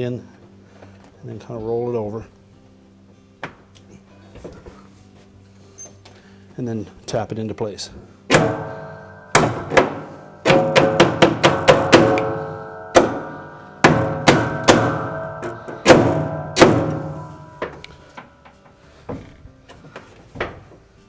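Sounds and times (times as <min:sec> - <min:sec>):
hollow plastic tub ringing: 0:08.3 - 0:18.2
hammer tapping metal clips: 0:08.3 - 0:18.7.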